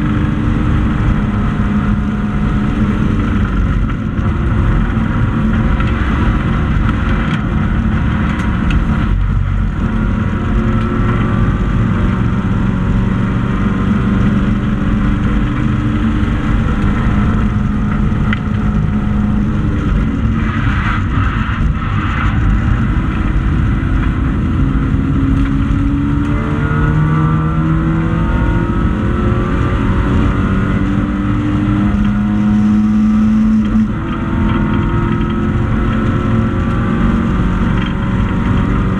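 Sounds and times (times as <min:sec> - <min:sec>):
racing car engine revving: 0:00.0 - 0:38.9.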